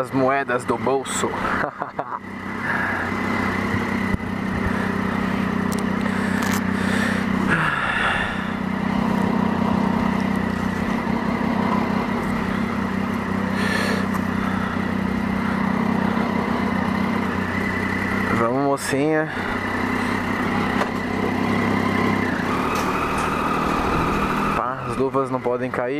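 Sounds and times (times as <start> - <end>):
motorcycle engine idling: 0.0 - 25.9.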